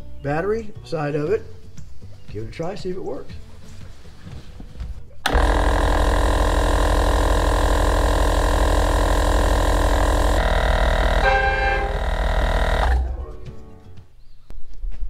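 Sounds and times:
air compressor motor hum: 5.3s - 13.4s.

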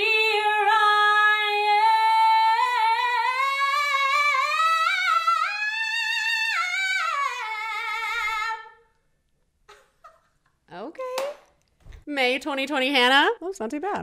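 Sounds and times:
woman singing unaccompanied: 0.0s - 8.8s.

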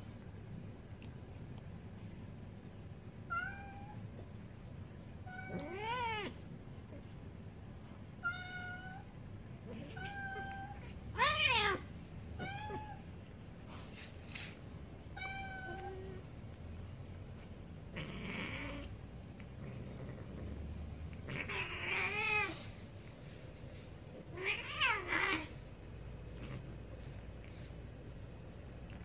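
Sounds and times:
cat meowing: 5.3s - 6.4s, 8.2s - 9.0s, 9.7s - 13.0s, 21.2s - 22.6s.

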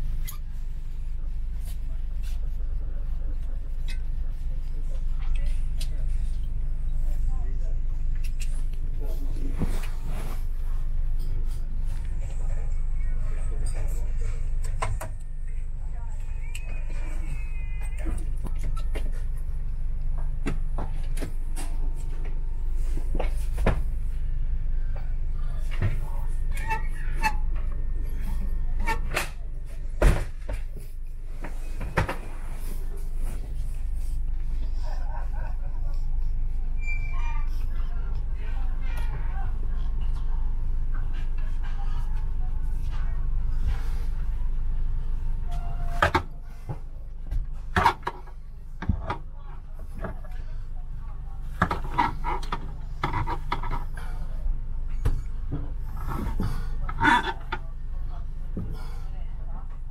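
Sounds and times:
steady low hum: 0.0s - 59.9s
train low rumble: 0.0s - 59.9s.

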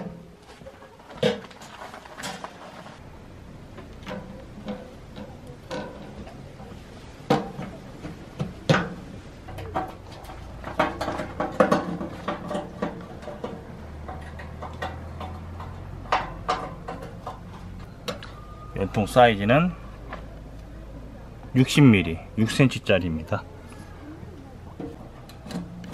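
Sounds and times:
metallic clicks and knocks: 8.7s - 18.4s.

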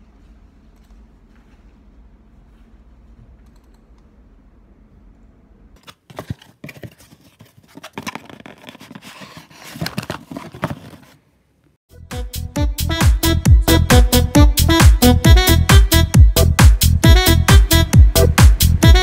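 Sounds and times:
faint room hum: 0.0s - 11.8s.

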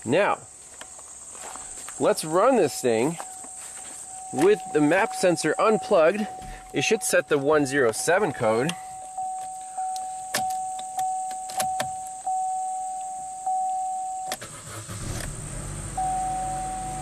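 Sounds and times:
car engine cranking and idling: 2.7s - 17.0s
electronic warning chime: 4.0s - 14.4s, 16.0s - 17.0s
sharp clicks: 7.8s - 12.3s.

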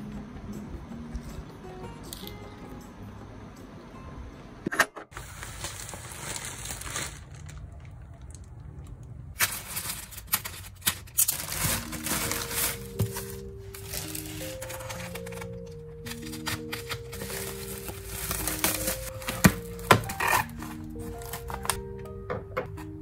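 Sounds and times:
soft background music: 0.0s - 4.7s, 11.3s - 23.0s
plastic and bubble wrap crinkling: 5.2s - 8.7s, 9.3s - 22.0s.

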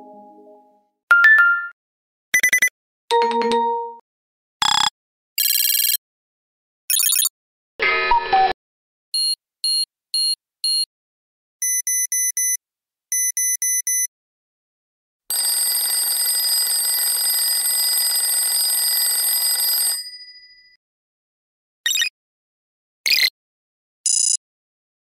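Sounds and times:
electronic alarm beeps: 9.2s - 10.9s, 11.6s - 14.1s.

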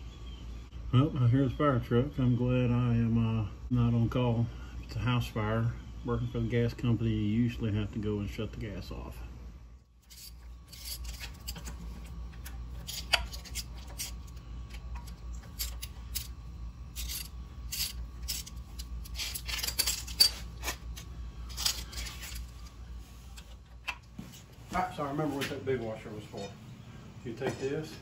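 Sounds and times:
metal parts clinking and scraping: 10.0s - 22.7s.

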